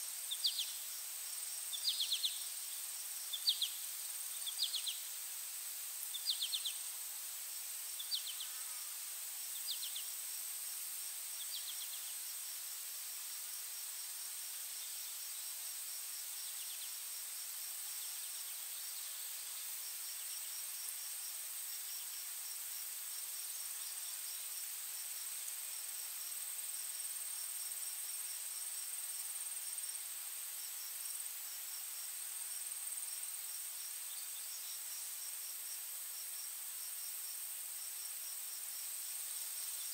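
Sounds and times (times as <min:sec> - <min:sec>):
insects droning with pulsed trills: 0:00.1 - 0:39.9
short insect chirps: 0:00.2 - 0:07.0, 0:07.8 - 0:12.2.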